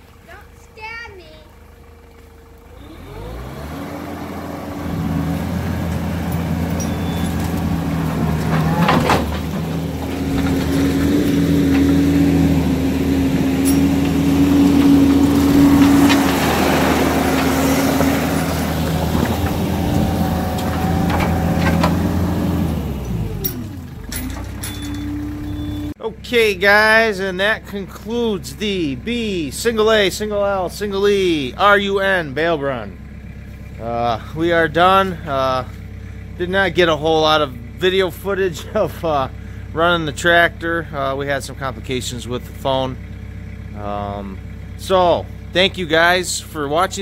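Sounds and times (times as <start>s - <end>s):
diesel engine revving: 0.0s - 47.0s
sharp metal clanks: 6.3s - 7.4s, 13.5s - 15.0s.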